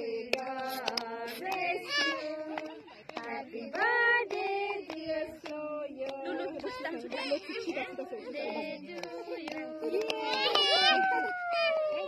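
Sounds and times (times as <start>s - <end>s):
children and women singing: 0.0s - 11.4s
hand claps: 0.3s - 6.8s, 8.9s - 11.2s.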